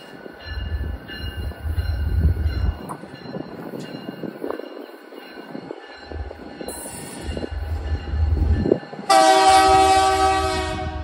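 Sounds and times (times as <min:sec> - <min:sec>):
diesel locomotive engines rumbling: 0:00.0 - 0:11.0
locomotive air horn chord: 0:09.1 - 0:11.0.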